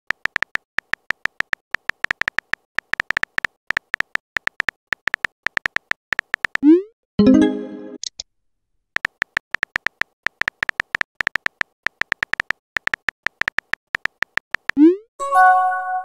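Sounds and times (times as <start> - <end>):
keyboard typing clicks: 0.1 - 8.2, 9.0 - 14.9
message-sent chime: 7.2 - 8.0.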